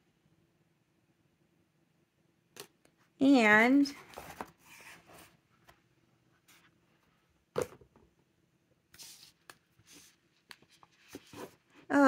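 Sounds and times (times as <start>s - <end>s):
paper and cardboard rustling: 4.0s - 5.7s, 9.0s - 11.9s.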